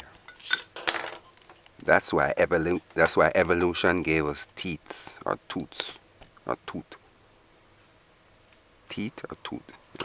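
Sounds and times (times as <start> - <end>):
man's voice: 8.9 - 9.8.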